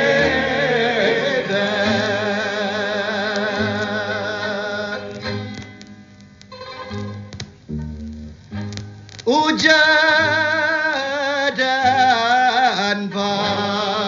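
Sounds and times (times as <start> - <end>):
person singing with vibrato: 0.0 - 5.8, 9.2 - 14.0
low plucked notes: 0.0 - 9.4.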